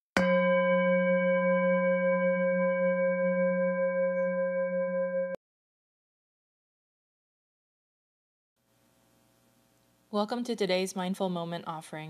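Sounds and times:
singing bowl ringing: 0:00.2 - 0:05.4.

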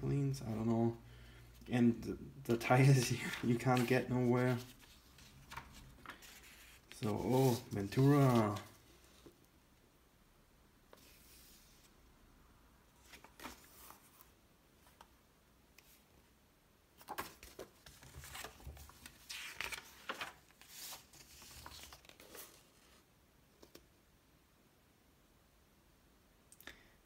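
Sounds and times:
magazine pages rustling: 0:02.6 - 0:09.4, 0:13.0 - 0:15.1, 0:17.0 - 0:23.0.

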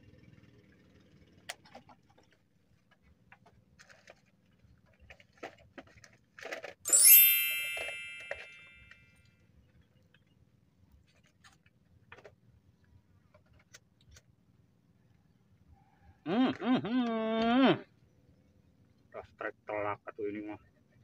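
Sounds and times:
small metal bell ringing: 0:06.9 - 0:09.0.

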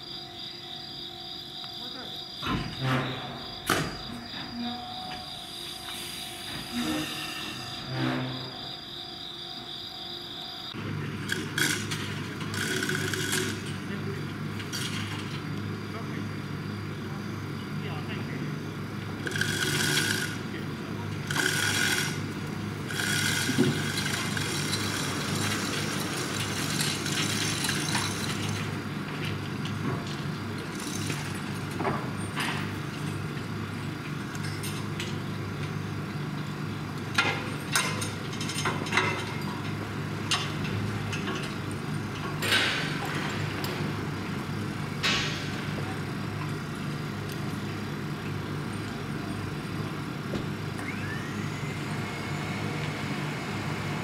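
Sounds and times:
idling machinery hum: 0:08.6 - 0:54.0
metal clanks and knocks: 0:37.2 - 0:43.9, 0:45.0 - 0:46.5.

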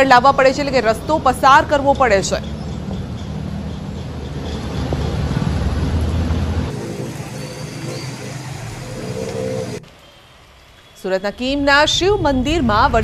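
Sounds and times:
vehicle engine humming: 0:00.9 - 0:09.9
rain hissing: 0:06.0 - 0:10.8
faint tones: 0:06.7 - 0:09.8.

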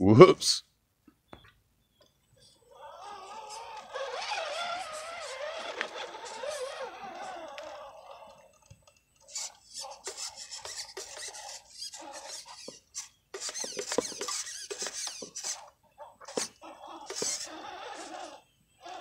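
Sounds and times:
electric motor and gears whining: 0:02.5 - 0:15.7, 0:16.3 - 0:19.0
tyres scraping on rock: 0:02.8 - 0:08.6, 0:09.2 - 0:15.7.

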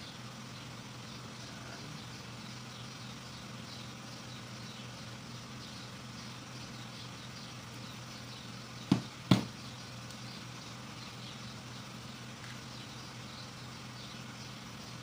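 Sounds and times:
hand tools knocking on workbench: 0:08.9 - 0:09.5.

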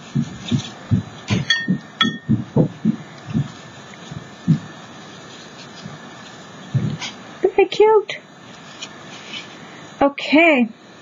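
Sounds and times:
hands tapping on paper: 0:00.2 - 0:04.7.

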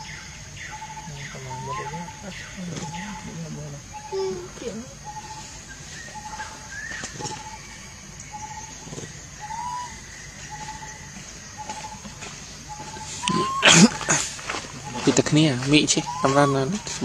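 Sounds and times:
steady high hiss: 0:00.0 - 0:17.0
bird calling warbled note: 0:12.7 - 0:15.2, 0:15.9 - 0:17.0.

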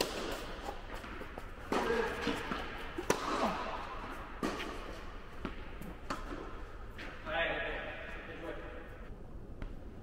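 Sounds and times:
tennis ball bouncing on court: 0:00.0 - 0:06.6
tennis ball hit with rackets: 0:00.0 - 0:06.6.

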